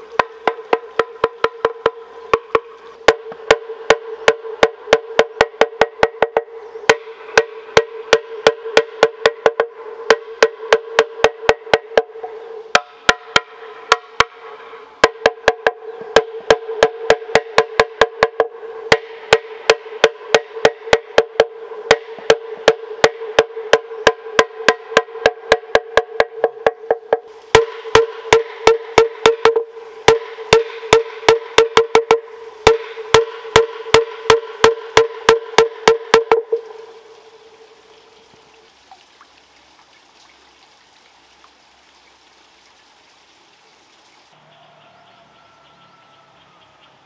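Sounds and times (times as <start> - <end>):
bamboo clapper knocking: 0.2 - 14.4, 15.0 - 36.8.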